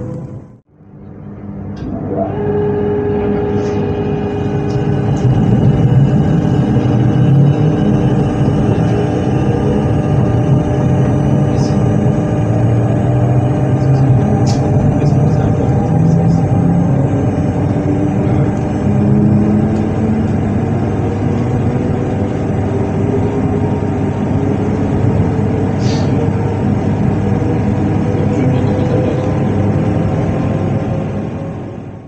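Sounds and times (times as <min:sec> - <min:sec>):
train equipment humming: 0:00.0 - 0:32.0.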